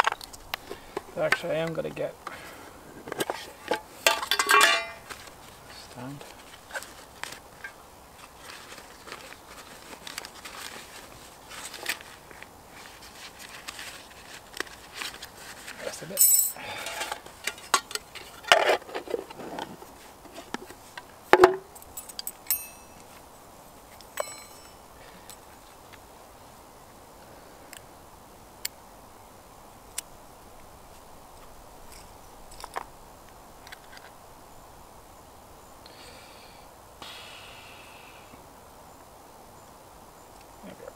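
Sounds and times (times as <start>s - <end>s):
thin metal clinking and rattling: 3.2s - 5.2s, 16.2s - 18.7s, 21.7s - 23.1s, 24.0s - 25.4s
sharp ringing metal knock: 22.5s - 23.0s.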